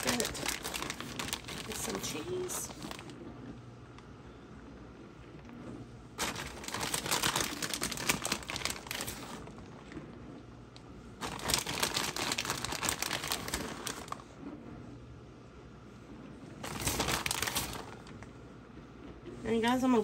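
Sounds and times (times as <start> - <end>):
packaging crinkling: 0.0 - 3.2, 6.2 - 9.9, 11.2 - 14.4, 16.6 - 18.3.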